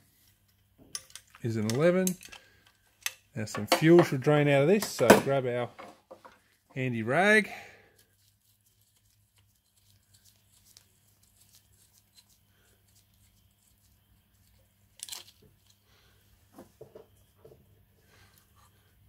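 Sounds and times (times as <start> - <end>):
small clicks and rustles of handling: 0.2 - 3.2.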